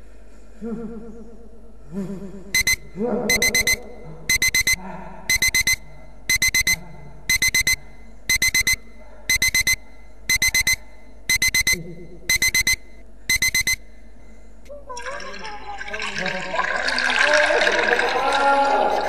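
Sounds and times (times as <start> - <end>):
digital alarm clock beeping: 2.6 - 14.0.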